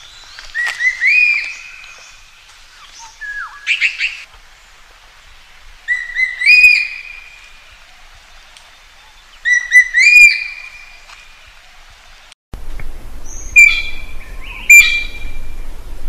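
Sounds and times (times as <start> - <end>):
whistled bird notes: 0.0 - 2.1, 2.8 - 4.2, 5.9 - 7.5, 9.1 - 11.0, 13.2 - 15.6
magpie calling: 5.9 - 7.3, 9.4 - 10.8, 13.5 - 15.2.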